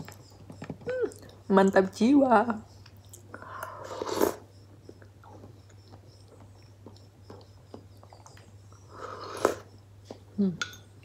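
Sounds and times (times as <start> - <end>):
person chewing: 2.8 - 10.2.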